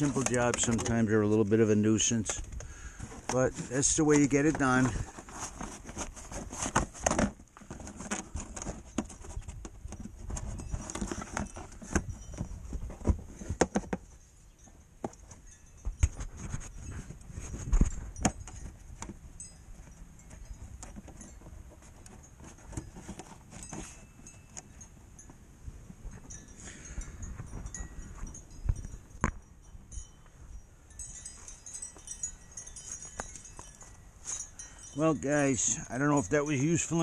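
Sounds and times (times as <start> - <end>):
tools and metal parts clinking: 0.0 - 1.4, 31.0 - 37.0.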